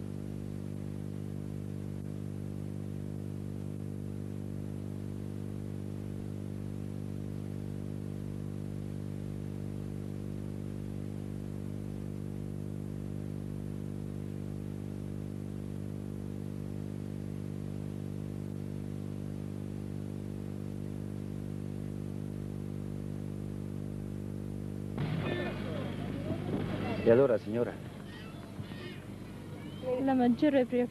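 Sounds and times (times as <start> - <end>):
electrical hum: 0.0 - 30.9.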